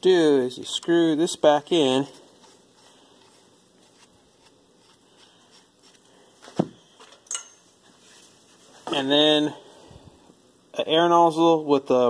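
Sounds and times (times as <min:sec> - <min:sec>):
metal part handling: 0:07.0 - 0:07.7.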